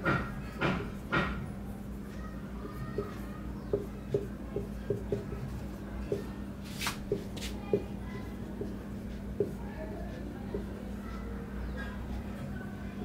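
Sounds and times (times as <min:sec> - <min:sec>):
marker writing on whiteboard: 0:02.7 - 0:07.9, 0:08.5 - 0:09.6.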